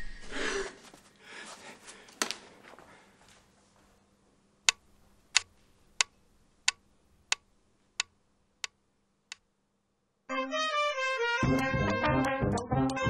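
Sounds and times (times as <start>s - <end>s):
metronome ticking: 5.4s - 9.4s, 11.6s - 13.0s.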